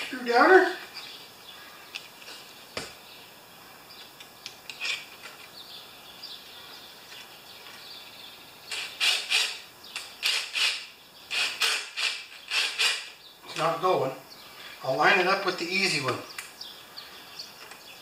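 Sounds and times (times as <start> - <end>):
cordless drill bursts: 8.7 - 9.6, 10.2 - 13.2.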